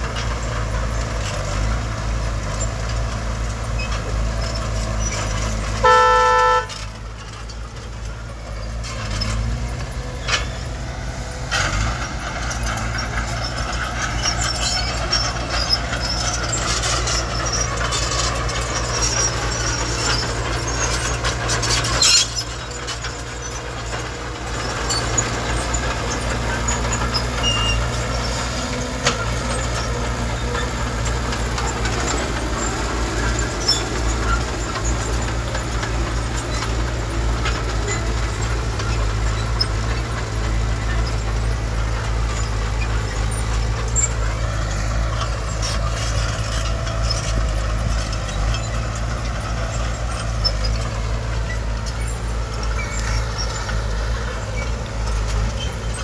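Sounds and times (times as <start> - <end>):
diesel machinery rumble: 0.0 - 56.0.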